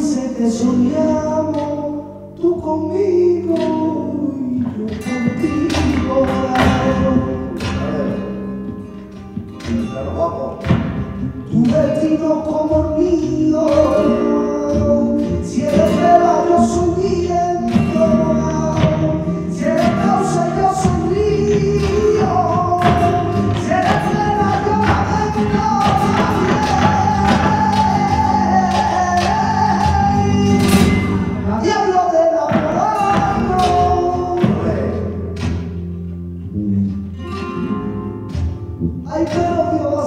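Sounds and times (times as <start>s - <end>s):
man singing: 0.0s - 8.8s, 9.7s - 35.4s, 39.0s - 40.0s
bass: 0.0s - 40.0s
flamenco guitar: 0.0s - 40.0s
hand claps: 3.4s - 4.0s, 4.6s - 8.4s, 9.1s - 31.3s, 32.5s - 35.9s
heels stamping on stage: 4.6s - 31.4s, 32.4s - 36.3s.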